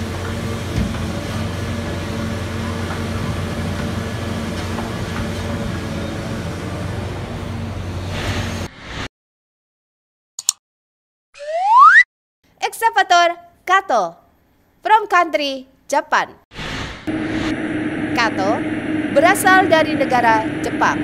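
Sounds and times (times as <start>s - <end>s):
excavator diesel engine running: 0.0s - 8.1s, 17.1s - 21.0s.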